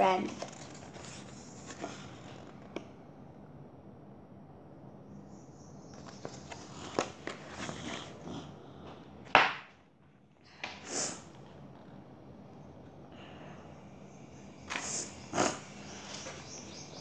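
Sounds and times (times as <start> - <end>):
book pages rustling: 0.2 - 2.8, 6.0 - 8.2.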